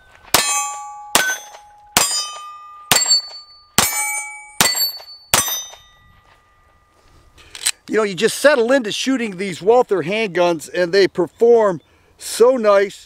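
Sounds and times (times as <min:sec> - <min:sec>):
steel target plates ringing: 0:00.0 - 0:07.0
pistol shots: 0:00.3 - 0:05.8.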